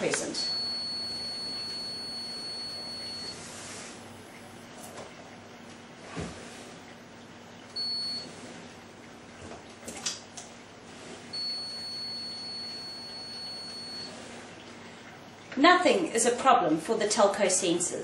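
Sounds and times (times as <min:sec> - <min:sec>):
electronic buzzer beeping: 0:00.4 - 0:03.3.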